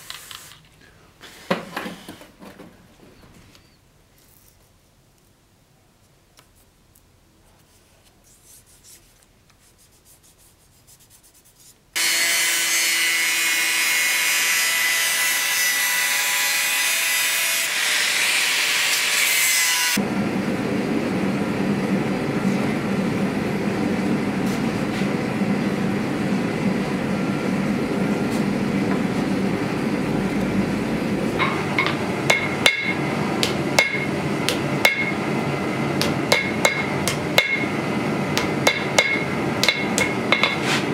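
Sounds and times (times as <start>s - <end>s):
hammer ringing on anvil: 31.4s - 35.2s, 36.3s - 37.8s, 38.4s - 40.6s.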